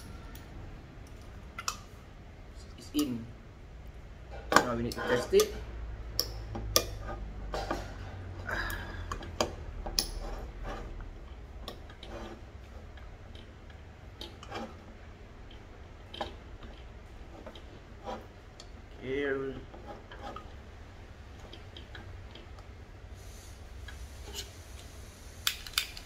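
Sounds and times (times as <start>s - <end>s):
camping stove metal clicks: 25.4s - 26.0s.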